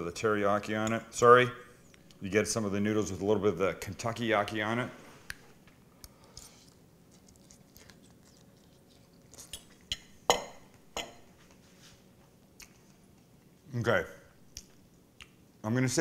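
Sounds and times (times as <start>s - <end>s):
faint chewing: 5.3s - 10.1s, 12.3s - 13.5s.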